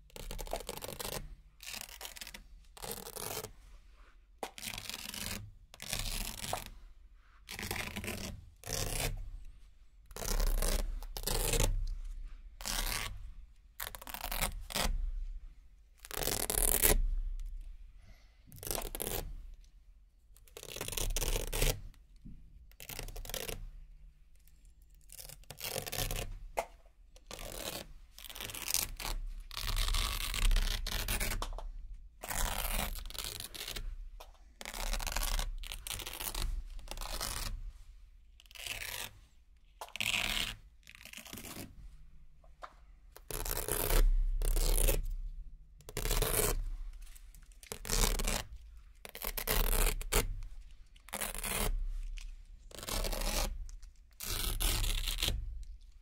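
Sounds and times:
velcro ripping: 0:00.0 - 0:03.5, 0:04.4 - 0:06.8, 0:07.5 - 0:09.2, 0:10.1 - 0:11.9, 0:12.6 - 0:13.2, 0:13.8 - 0:15.0, 0:16.0 - 0:17.1, 0:18.6 - 0:19.4, 0:20.4 - 0:21.8, 0:22.7 - 0:23.6, 0:25.0 - 0:26.4, 0:27.2 - 0:34.0, 0:34.6 - 0:37.6, 0:38.4 - 0:41.8, 0:43.2 - 0:45.2, 0:45.8 - 0:55.8.

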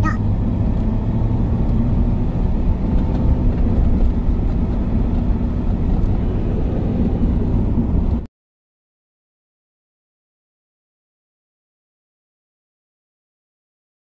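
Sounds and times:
car engine and road rumble: 0:00.0 - 0:08.3.

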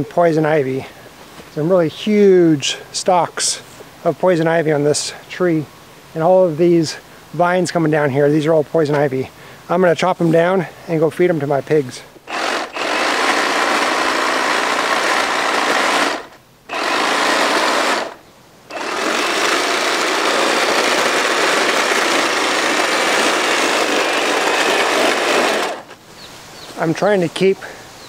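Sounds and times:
hedge trimmer buzzing: 0:12.2 - 0:26.0.

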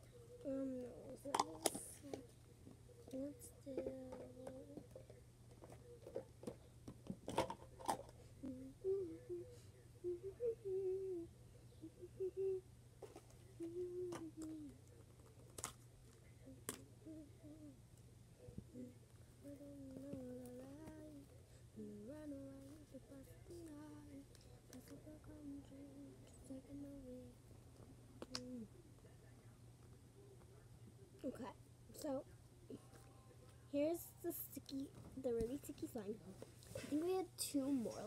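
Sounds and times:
girl humming: 0:08.4 - 0:12.6, 0:13.6 - 0:14.8, 0:16.4 - 0:17.8, 0:18.7 - 0:24.2, 0:28.3 - 0:28.7.

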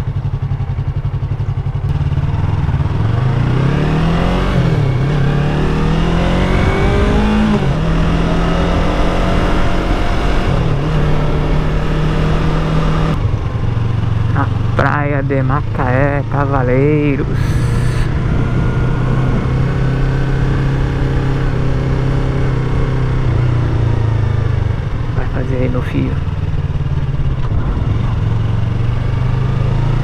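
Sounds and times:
motorcycle engine accelerating: 0:00.0 - 0:30.0
wind across microphone: 0:18.0 - 0:21.9.

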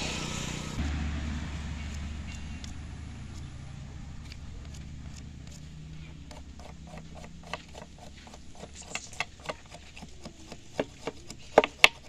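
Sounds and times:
knife whittling wood: 0:00.0 - 0:12.0
low steady rumble: 0:00.0 - 0:12.0.

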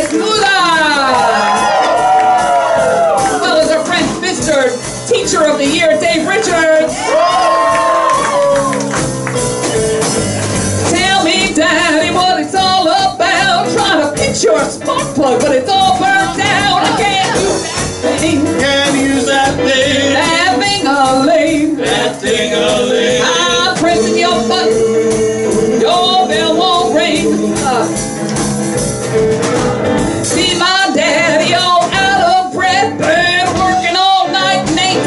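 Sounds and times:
live blues band playing: 0:00.0 - 0:35.0.

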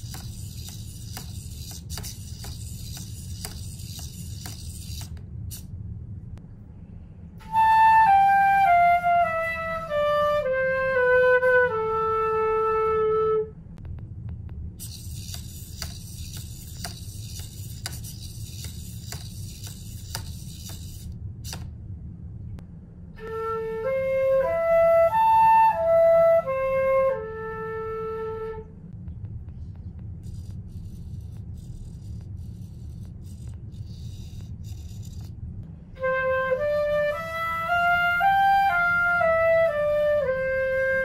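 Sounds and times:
toy robot motor whirring: 0:00.0 - 0:05.7, 0:14.8 - 0:21.7, 0:30.2 - 0:35.3
low steady hum: 0:00.0 - 0:41.0
flute arpeggio: 0:07.4 - 0:13.5.

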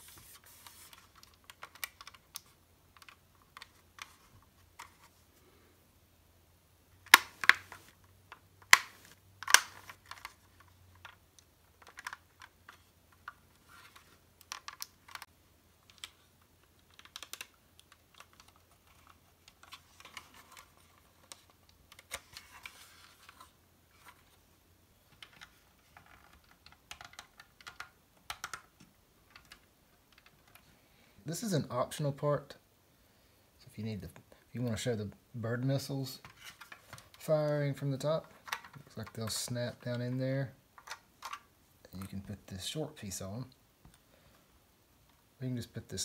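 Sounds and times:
rustling: 0:00.0 - 0:05.8
plastic parts clicking: 0:00.9 - 0:05.1, 0:07.0 - 0:24.3, 0:25.1 - 0:30.7, 0:38.2 - 0:40.2, 0:40.8 - 0:42.1
plastic parts snapping: 0:07.0 - 0:10.4, 0:14.4 - 0:16.2, 0:40.8 - 0:41.5.

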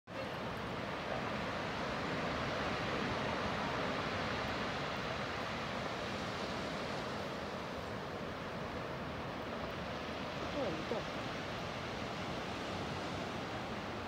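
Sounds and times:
wind: 0:00.1 - 0:14.0.

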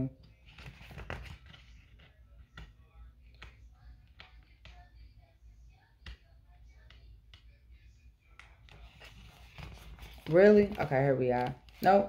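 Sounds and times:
soft ticks of pages turning: 0:00.2 - 0:04.9, 0:08.3 - 0:12.0
book pages rustling: 0:00.3 - 0:04.9, 0:08.3 - 0:12.0.

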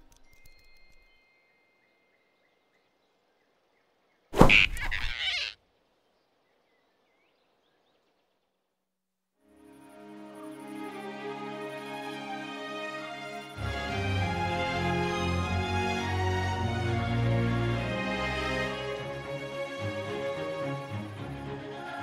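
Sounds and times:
cartoon sound effect burst: 0:04.4 - 0:05.6.

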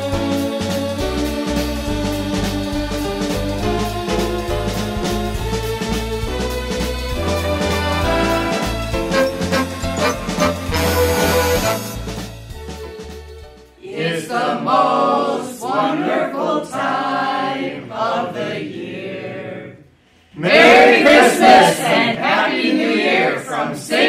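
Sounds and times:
group singing unaccompanied: 0:13.8 - 0:24.0.

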